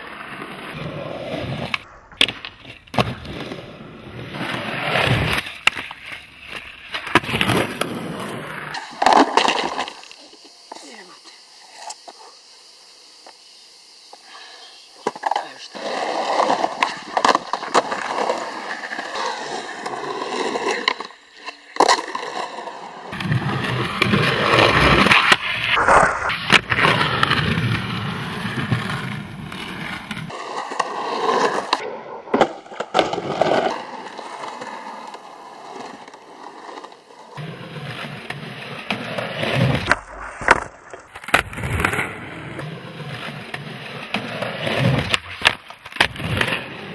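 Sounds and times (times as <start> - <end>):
skateboard popping and landing: 0.0 - 10.8, 15.0 - 46.9
skateboard wheels rolling on concrete: 0.0 - 46.9.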